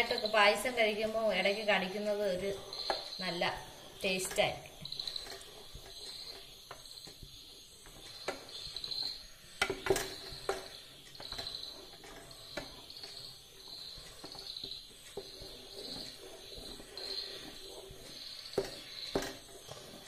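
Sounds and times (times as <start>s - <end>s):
spatula scraping metal pan: 7.8s - 20.0s.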